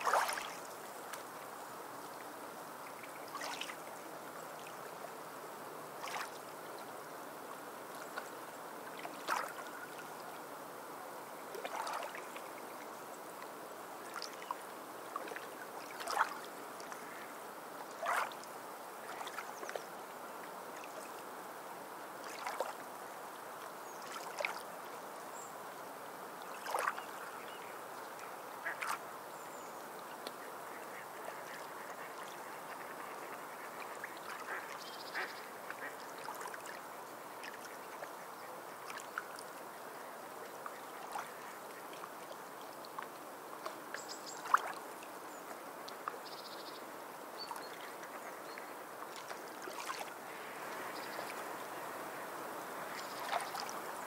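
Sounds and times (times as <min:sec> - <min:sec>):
sea bird calls: 0:34.4 - 0:35.9.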